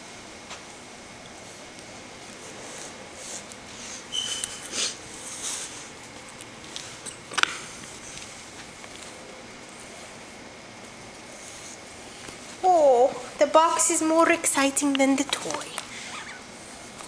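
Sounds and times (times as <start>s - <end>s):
high squeak: 4.1s - 4.7s.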